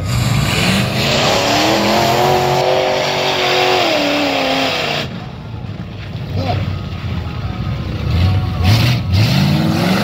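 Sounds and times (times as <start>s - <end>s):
truck engine revving hard: 0.0s - 5.3s, 8.0s - 10.0s.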